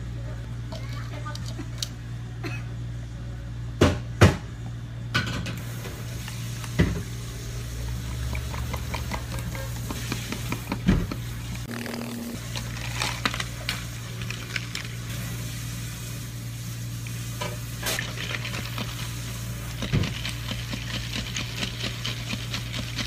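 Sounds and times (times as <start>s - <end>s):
straw stirring drink: 18.0s - 19.1s, 19.7s - 23.0s.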